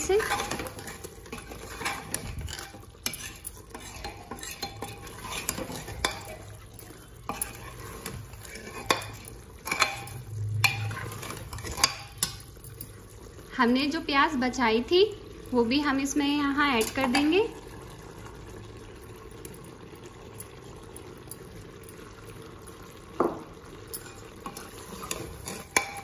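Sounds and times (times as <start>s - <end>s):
metal ladle scraping pot: 0.0s - 12.8s, 23.8s - 26.0s
meat sizzling in oil: 0.0s - 26.0s.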